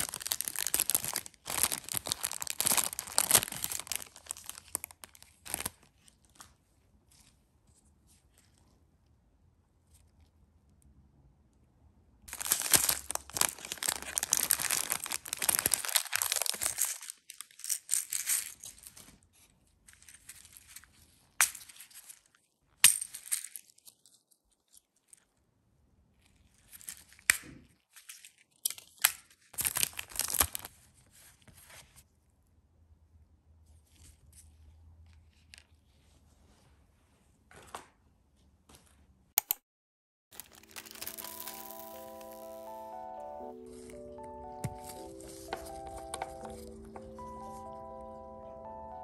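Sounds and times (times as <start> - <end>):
plastic packaging crinkling: 0.0 - 6.5, 12.3 - 19.2, 29.6 - 30.8, 40.3 - 47.9.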